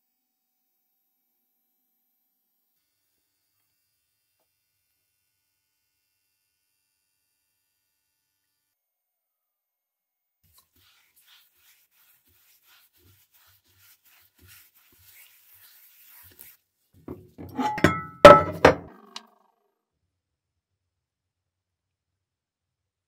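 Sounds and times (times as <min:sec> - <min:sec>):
cast iron pan knocking on countertop: 0:17.1 - 0:19.2.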